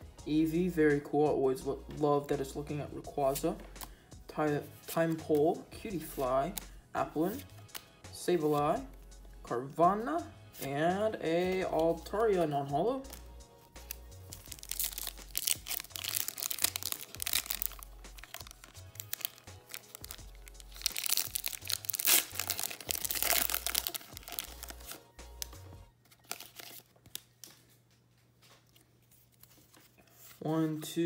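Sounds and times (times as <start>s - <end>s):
foil wrapper crinkling and tearing: 13.8s - 27.5s.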